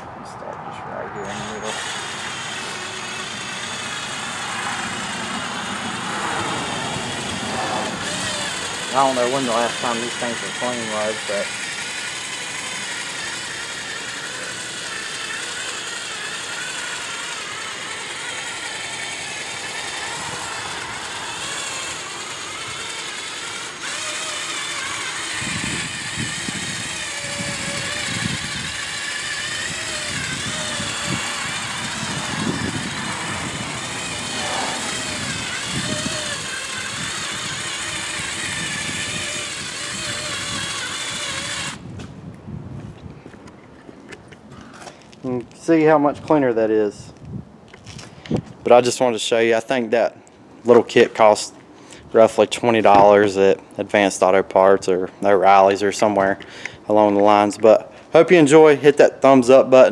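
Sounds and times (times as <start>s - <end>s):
drill motor whine: 1.2s - 41.9s.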